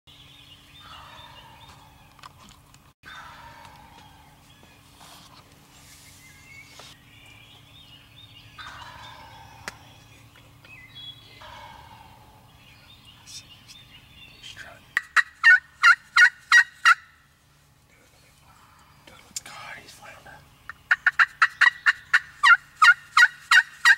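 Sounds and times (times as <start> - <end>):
turkey gobbling: 8.6 - 9.9, 11.4 - 12.5, 15.0 - 17.1, 20.9 - 23.9
faint turkey calls: 11.4 - 13.5.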